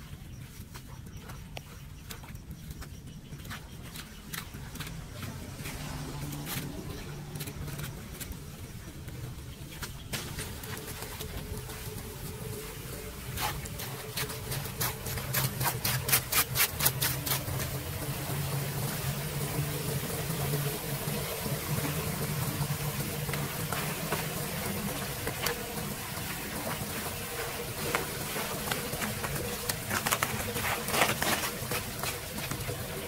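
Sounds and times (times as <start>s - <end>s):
scraping leaves off metal grate: 3.4s - 12.5s, 13.2s - 18.1s, 26.2s - 33.0s
running water: 4.6s - 33.0s.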